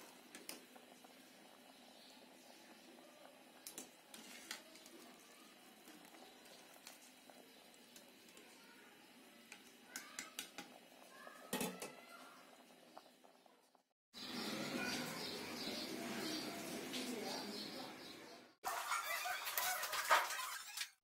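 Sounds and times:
pasta sizzling in hot oil: 0.0s - 17.0s
wire skimmer scraping a pan: 4.0s - 5.2s, 18.7s - 21.0s.

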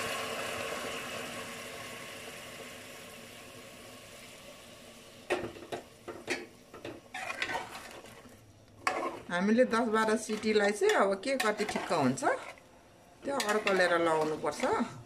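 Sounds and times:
metal spoon scraping a pot: 6.3s - 12.7s, 13.3s - 15.0s.

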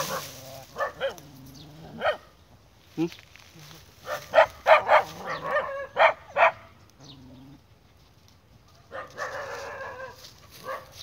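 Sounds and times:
dog barking: 0.0s - 1.2s, 2.0s - 2.3s, 4.0s - 6.7s, 8.9s - 11.0s.

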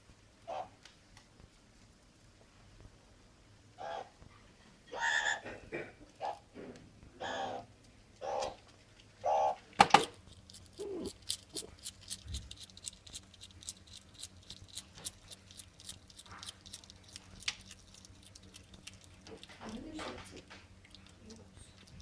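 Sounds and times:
claws scratching on tiles: 10.0s - 19.8s.

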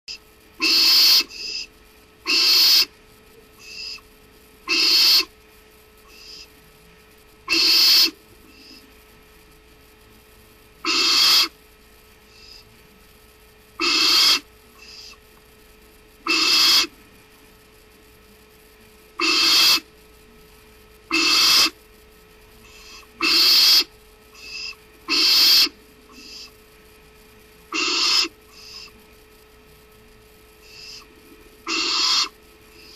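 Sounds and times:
owl screeching: 0.6s - 1.7s, 2.3s - 2.9s, 3.6s - 4.0s, 4.7s - 5.3s, 6.1s - 6.5s, 7.5s - 8.2s, 10.8s - 11.6s, 13.8s - 15.2s, 16.2s - 16.9s, 19.2s - 19.9s, 21.1s - 21.8s, 22.8s - 26.5s, 27.7s - 29.0s, 30.6s - 32.9s
short faint owl calls: 0.6s - 2.9s, 3.6s - 4.1s, 4.7s - 5.3s, 6.1s - 6.5s, 7.5s - 8.8s, 10.8s - 11.6s, 13.8s - 15.2s, 16.2s - 17.0s, 19.2s - 19.9s, 21.1s - 21.8s, 22.7s - 26.5s, 27.7s - 29.0s, 30.6s - 32.9s.

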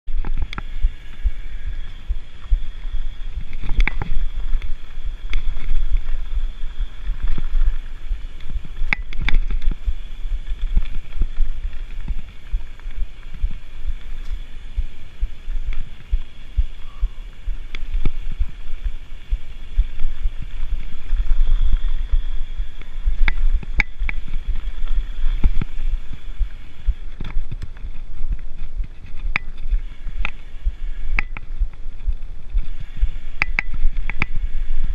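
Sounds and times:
wind buffeting microphone: 0.0s - 34.9s
bike clicks and rattles: 0.1s - 34.9s.

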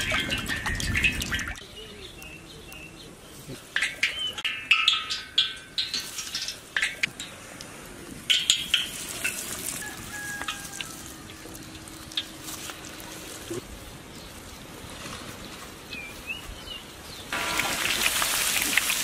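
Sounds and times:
chicken deep-frying in oil: 8.6s - 12.4s, 17.3s - 19.0s
sharp crackles of frying: 17.3s - 19.0s.

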